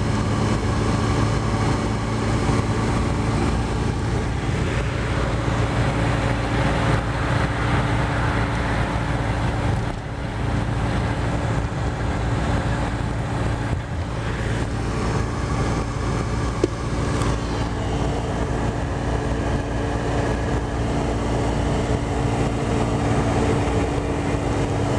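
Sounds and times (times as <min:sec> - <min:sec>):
car road and engine noise: 0:00.0 - 0:24.9.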